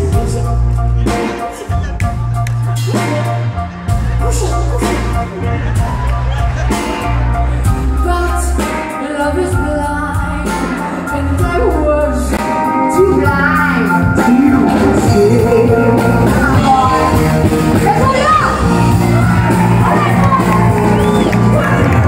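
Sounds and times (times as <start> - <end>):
country band playing: 0.0 - 22.0
woman singing lead vocal: 7.8 - 19.0.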